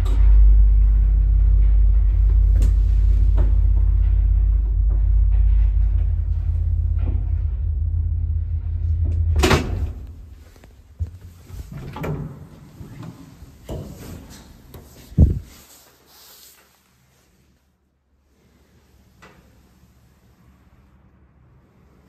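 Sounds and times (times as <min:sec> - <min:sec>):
lift humming: 0:00.0 - 0:15.7
door banging open: 0:08.6 - 0:10.4
loud clunk: 0:08.7 - 0:10.4.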